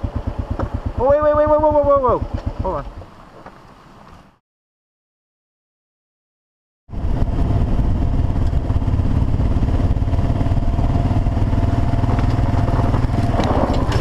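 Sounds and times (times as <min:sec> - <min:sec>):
motorcycle engine running: 0:00.0 - 0:03.1, 0:06.9 - 0:14.0.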